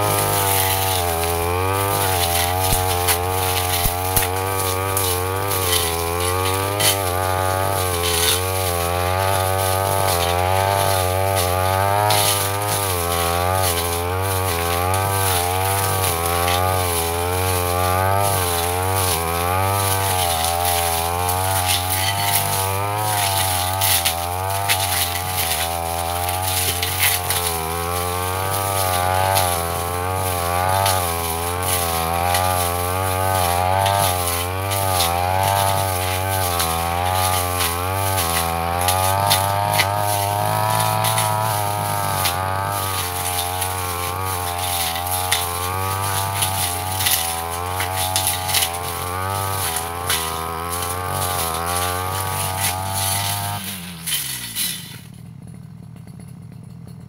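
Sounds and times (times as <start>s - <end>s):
blade clicking on woody stems: 0.0s - 55.1s
brush cutter engine revving: 0.0s - 57.0s.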